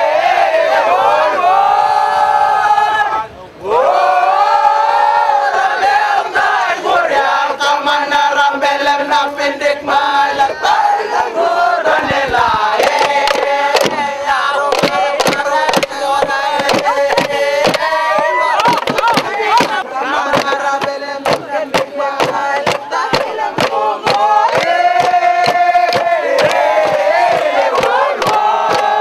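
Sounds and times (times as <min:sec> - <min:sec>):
men chanting and singing: 0:00.0 - 0:29.0
sharp percussive strikes: 0:12.8 - 0:29.0.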